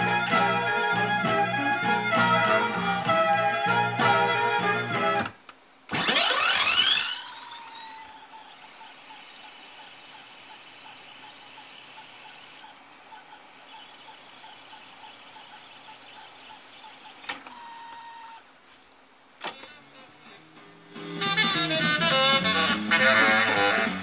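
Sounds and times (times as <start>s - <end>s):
tape deck winding whirr: 0.0s - 18.5s, 19.4s - 24.0s
tape deck click: 19.4s - 20.1s.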